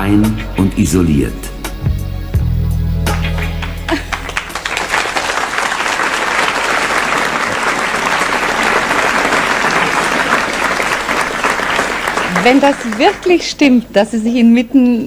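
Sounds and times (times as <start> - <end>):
audience applauding: 3.3 - 13.8.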